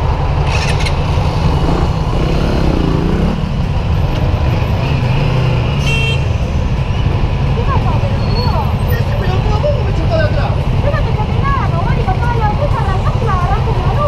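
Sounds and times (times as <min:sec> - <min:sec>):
engine revving: 0:00.0 - 0:03.7, 0:04.5 - 0:06.0
motorcycle engines rumbling: 0:00.0 - 0:14.0.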